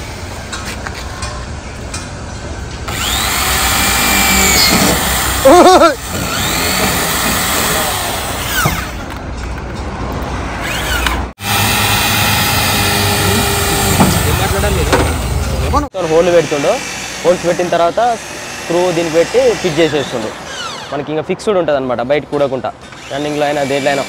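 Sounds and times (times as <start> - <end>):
electric drill whining: 2.9 - 9.2, 10.6 - 15.4, 16.1 - 21.0, 22.8 - 24.0.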